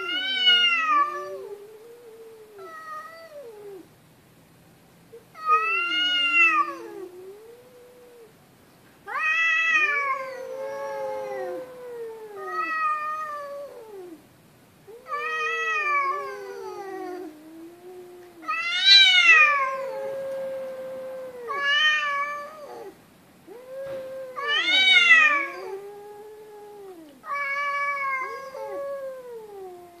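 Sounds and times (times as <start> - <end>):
cats caterwauling: 0.0 - 3.9, 5.2 - 8.4, 9.0 - 14.2, 14.8 - 30.0.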